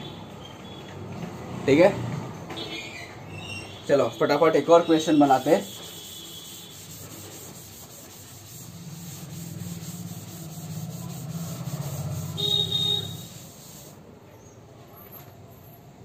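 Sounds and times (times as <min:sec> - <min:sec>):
cloth rubbing chalkboard: 0:05.2 - 0:14.0.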